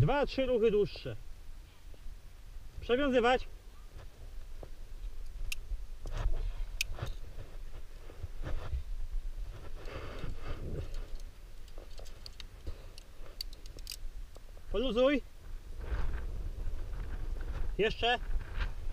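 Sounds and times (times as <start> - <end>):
rope rustling: 4.0 - 14.6
carabiners clinking on metal: 10.8 - 14.0.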